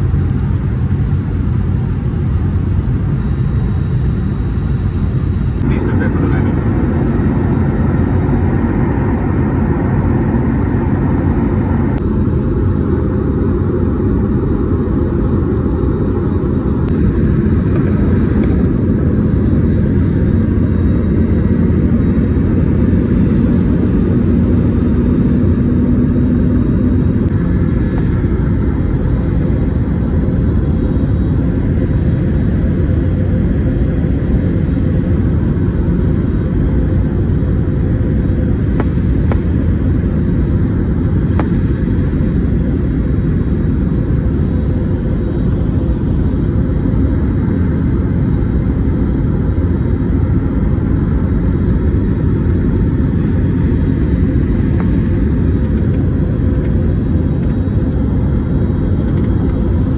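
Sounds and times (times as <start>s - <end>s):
jet engine cabin rumble: 0.0s - 59.9s.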